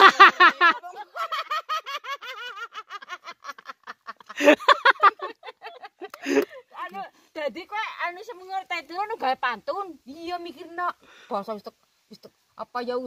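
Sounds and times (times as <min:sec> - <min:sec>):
women laughing: 0:00.0 - 0:06.7.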